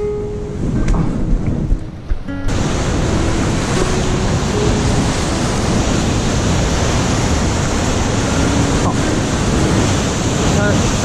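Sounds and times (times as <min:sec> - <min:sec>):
ocean surf breaking on rocks: 0:00.0 - 0:11.0.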